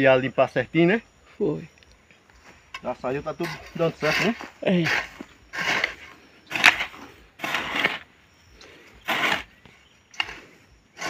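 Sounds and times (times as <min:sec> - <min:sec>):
hoe chopping and scraping soil: 0:02.8 - 0:11.0.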